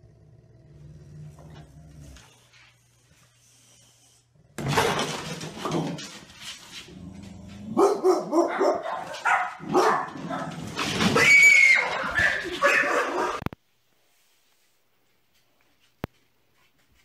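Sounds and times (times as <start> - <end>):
dog barking: 7.8 - 10.6, 11.7 - 13.4.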